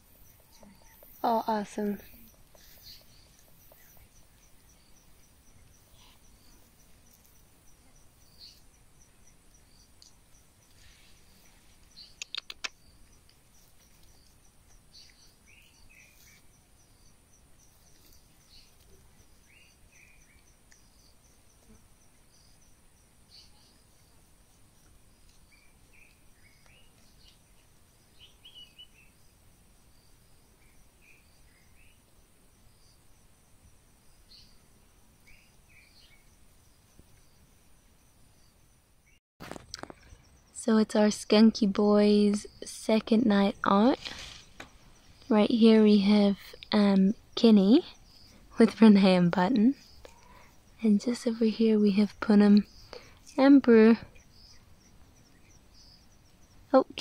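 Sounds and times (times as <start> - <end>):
insects trilling: 0.0 - 57.0
quick run of clicks: 12.1 - 12.8.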